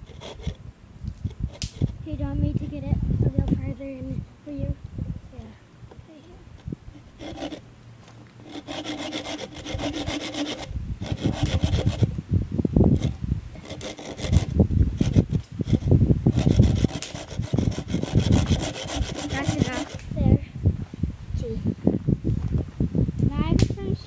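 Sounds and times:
hand saw cutting branch: 0.0 - 0.6, 1.2 - 2.0, 6.6 - 7.6, 8.4 - 12.1, 12.9 - 20.2.

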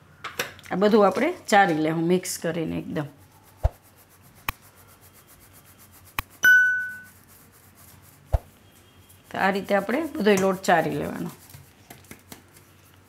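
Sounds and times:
flour shaken through sieve: 2.8 - 13.0
bell-like notification ding: 6.4 - 7.1.

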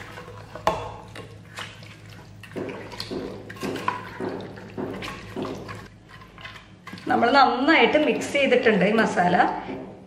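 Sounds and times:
wet squelching and sloshing: 0.0 - 9.3.

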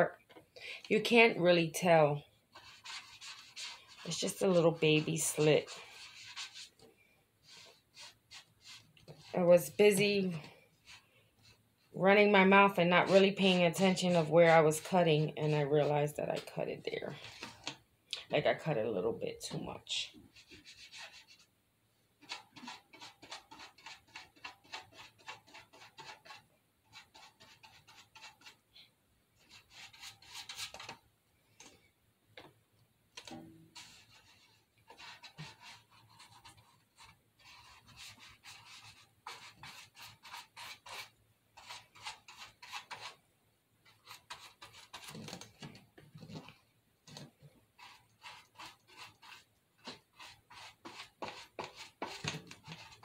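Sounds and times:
paintbrush scratching on paper: 0.9 - 6.8, 7.4 - 17.7, 19.9 - 21.5, 22.2 - 28.6, 29.4 - 31.0, 33.2 - 43.2, 43.8 - 45.5, 46.2 - 53.0.

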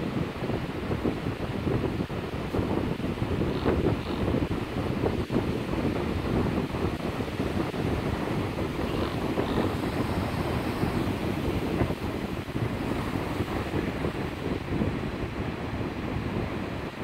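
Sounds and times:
wind buffeting microphone: 0.0 - 17.0
ocean surf breaking: 5.4 - 17.0.

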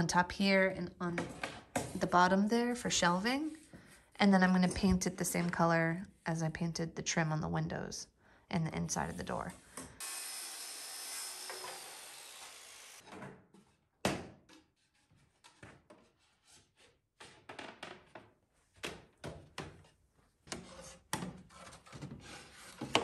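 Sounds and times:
circular saw blade spinning down: 10.0 - 13.0.

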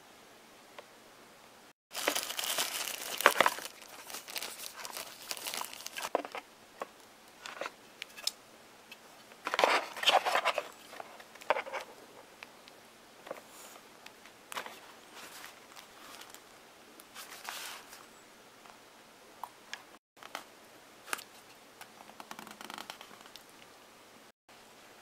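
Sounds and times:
packaging crinkling: 1.9 - 6.3.

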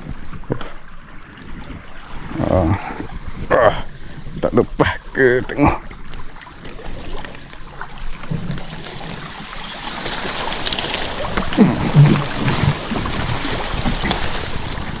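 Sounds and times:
river water splashing and rushing: 0.0 - 15.0.

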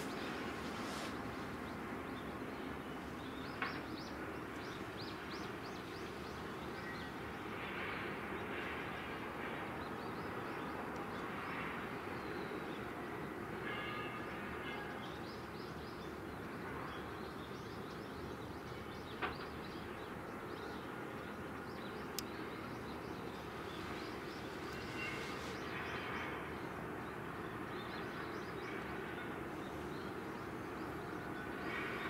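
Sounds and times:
outdoor noise: 0.0 - 32.0.

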